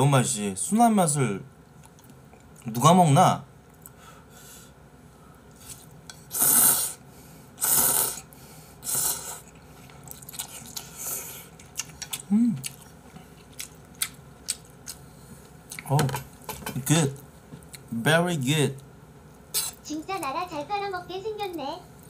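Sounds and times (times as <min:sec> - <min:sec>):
noodles slurped: 0:06.3 - 0:07.0, 0:07.6 - 0:12.8
wet chewing clicks: 0:11.5 - 0:15.0
person humming: 0:12.3 - 0:12.7.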